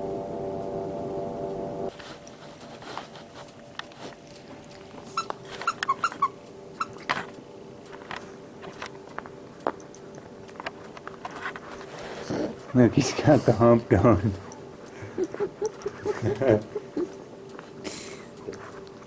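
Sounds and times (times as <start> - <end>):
squeaky dog toy squeaks: 5.2 - 7.1.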